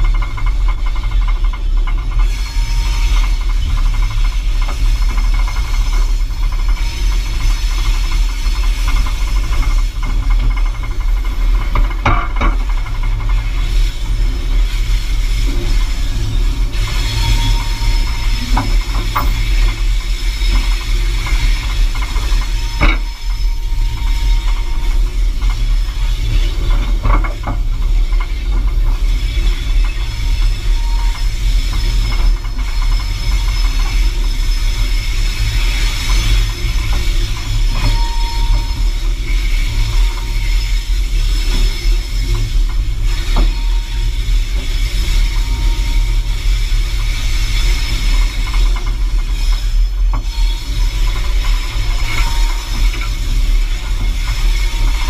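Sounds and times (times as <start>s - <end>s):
locomotive rumble: 0.0s - 55.0s
thin squeals: 15.7s - 25.1s, 29.9s - 46.6s.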